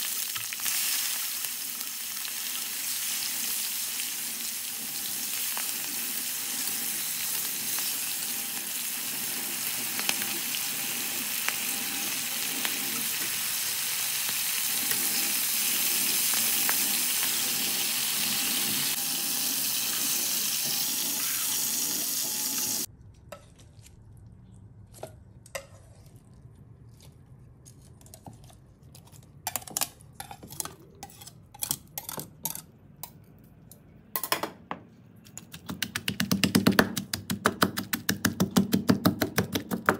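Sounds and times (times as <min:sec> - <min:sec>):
chicken sizzling in hot oil: 0:00.0 - 0:22.9.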